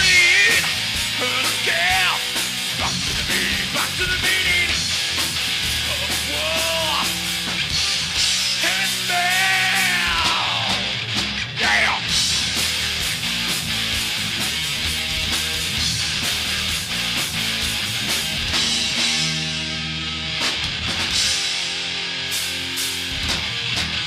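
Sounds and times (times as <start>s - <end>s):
singer yelling: 0.0s - 4.9s, 5.8s - 7.5s, 8.5s - 12.1s
bass guitar: 0.0s - 24.0s
drum kit: 0.0s - 24.0s
electric guitars: 0.0s - 24.0s.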